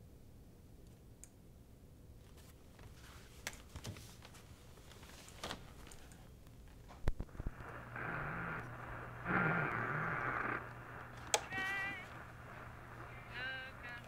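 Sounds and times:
paper rustling and handling: 2.3 - 6.1.

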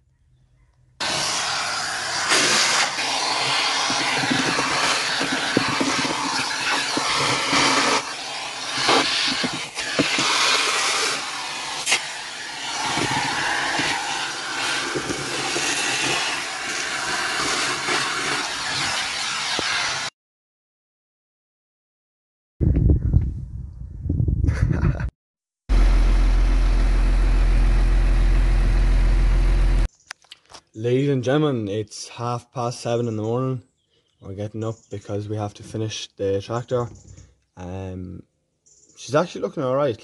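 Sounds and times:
grit clicking up vacuum nozzle: 1.0 - 20.1
vacuum cleaner running: 1.0 - 20.1.

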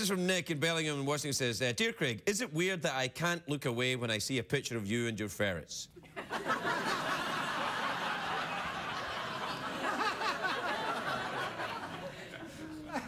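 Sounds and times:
studio audience laughing: 6.0 - 13.0.

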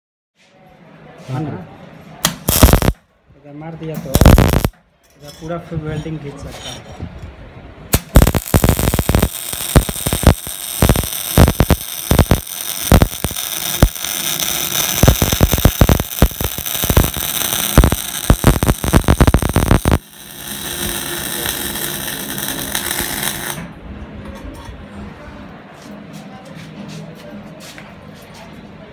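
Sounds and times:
welding arc crackling: 2.3 - 3.0, 4.1 - 4.8, 7.9 - 23.6.

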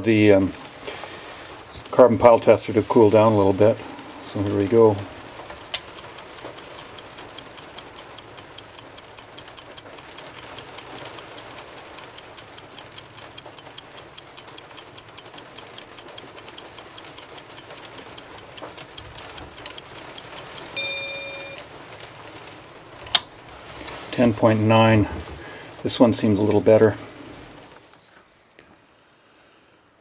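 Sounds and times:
fast clock ticking: 5.6 - 21.6.

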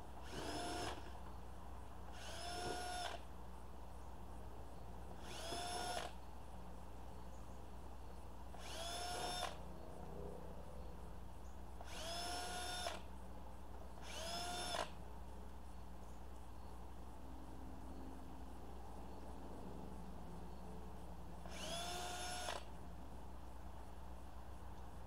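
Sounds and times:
cordless drill motor whine: 0.2 - 1.1, 2.1 - 3.2, 5.2 - 6.2, 8.6 - 9.6, 11.8 - 13.1, 14.0 - 15.0, 21.4 - 22.7.

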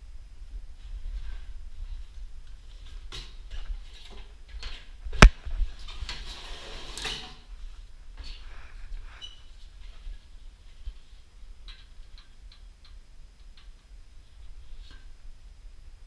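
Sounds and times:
scraping on stepladder: 5.7 - 7.5.

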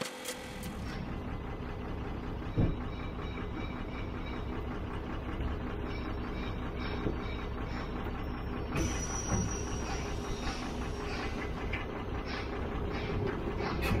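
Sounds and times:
truck engine running: 0.1 - 14.0
thump: 2.6 - 2.8.

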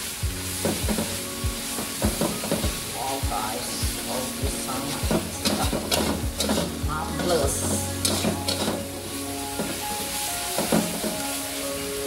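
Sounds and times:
food sizzling: 0.0 - 12.0
metal spatula scraping a wok: 4.6 - 11.5.

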